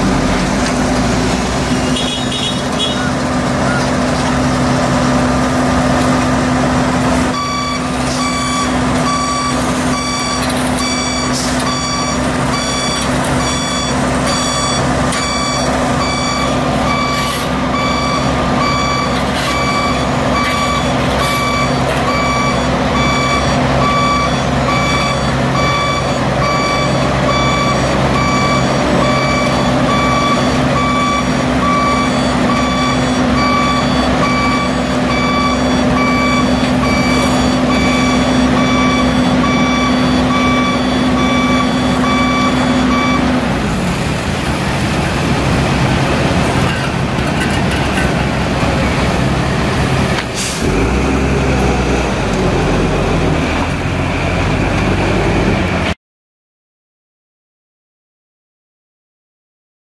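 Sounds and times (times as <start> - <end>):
diesel engine running: 0.0 - 56.0
backup alarm beeping: 7.3 - 43.4.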